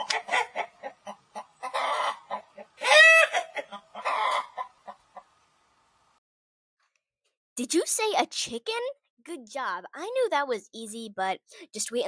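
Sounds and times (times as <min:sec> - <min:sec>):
chicken clucking and squawking: 0:00.0 - 0:05.3.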